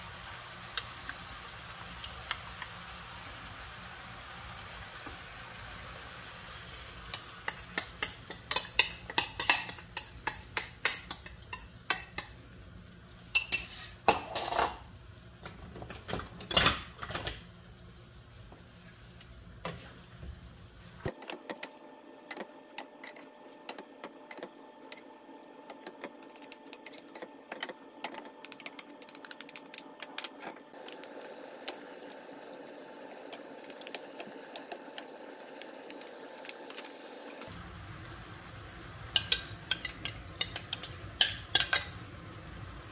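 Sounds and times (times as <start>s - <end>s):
utensils scraping a frying pan: 7.2s - 12.4s, 13.4s - 14.9s.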